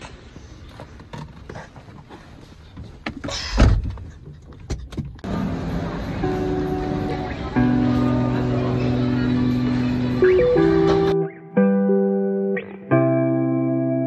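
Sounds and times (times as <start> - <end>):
background music: 5.3 - 14.0.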